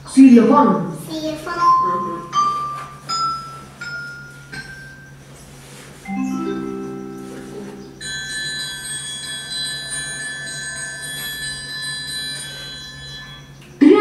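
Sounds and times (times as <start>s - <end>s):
xylophone through laptop speaker: 1.7s - 5.0s, 6.1s - 14.0s.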